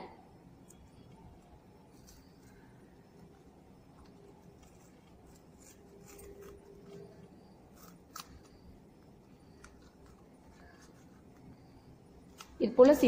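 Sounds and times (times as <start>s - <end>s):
scissors snipping leaf: 7.8s - 8.5s.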